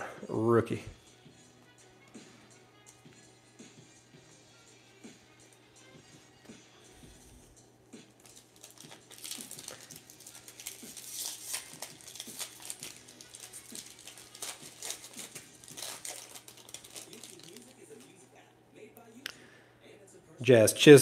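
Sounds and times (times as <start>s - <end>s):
foil wrapper crinkling: 8.2s - 18.2s.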